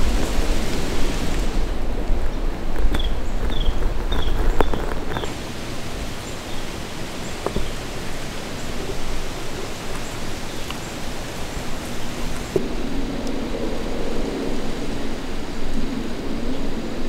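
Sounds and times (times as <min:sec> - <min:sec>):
steady rushing hiss with rustling: 0:00.0 - 0:17.0
low rumble: 0:11.9 - 0:17.0.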